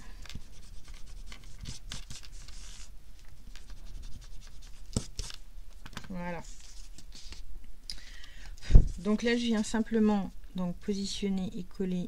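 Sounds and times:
paper rustling: 0.1 - 7.5.

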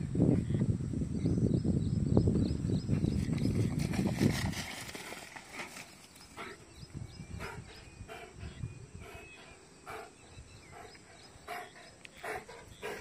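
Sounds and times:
dog panting: 7.4 - 13.0.

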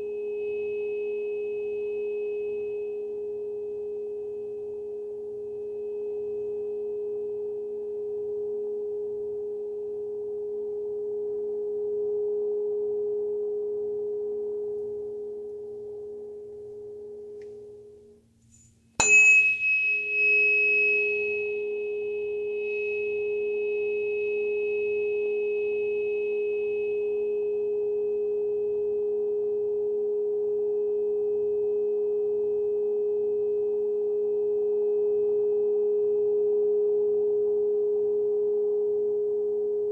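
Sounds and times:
tuning fork ringing pure tone: 0.0 - 39.9
tuning fork struck metallic tap: 19.0 - 21.7.

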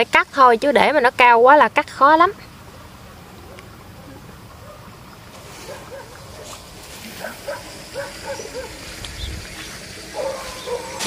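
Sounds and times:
low outdoor background: 0.0 - 11.0
animal yelping: 7.2 - 8.8.

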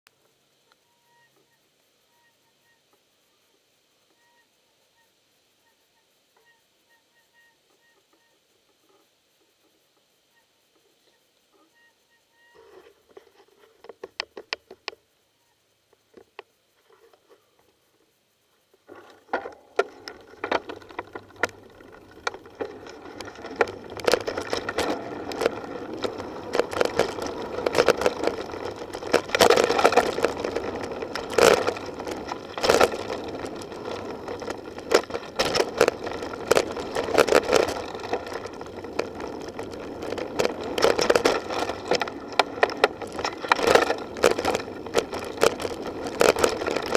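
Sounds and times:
bike knocking and rattling: 18.9 - 46.9
tyres rushing on dirt: 18.9 - 46.9.

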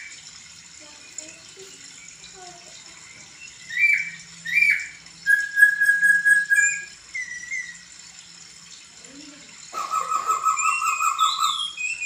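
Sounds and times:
bird singing whistles: 3.4 - 7.8, 10.5 - 12.0.

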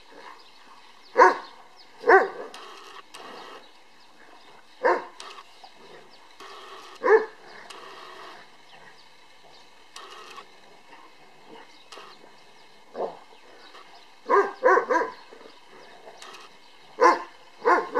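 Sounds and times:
dogs barking: 1.1 - 2.8, 4.8 - 5.3, 6.8 - 8.3, 12.9 - 16.4, 17.0 - 17.9.

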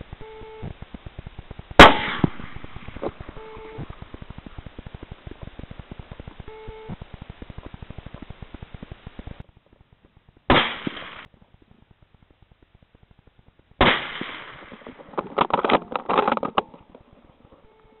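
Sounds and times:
sharp knocks and crackles: 0.0 - 17.6
rifle shots with echo: 1.8 - 4.8, 10.5 - 11.3, 13.8 - 15.2.

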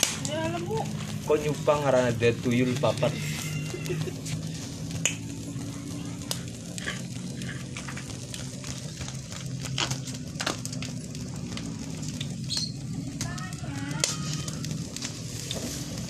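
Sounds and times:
sharp pops: 0.0 - 1.2, 4.9 - 5.4
squid sizzling on a grill: 0.0 - 16.0
steady low hum: 0.0 - 16.0.

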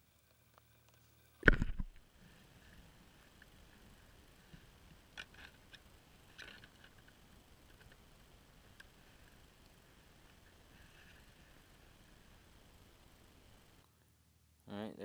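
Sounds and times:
camera clicks and taps: 1.4 - 2.0.

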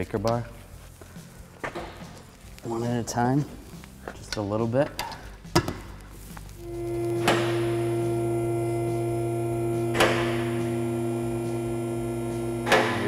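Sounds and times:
hydraulic pump motor humming: 6.6 - 13.0.

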